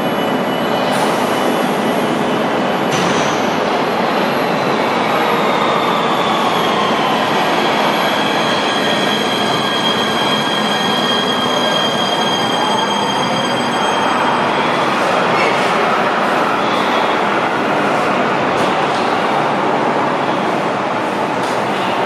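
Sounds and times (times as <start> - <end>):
high brake squeal: 4.3 - 15.6.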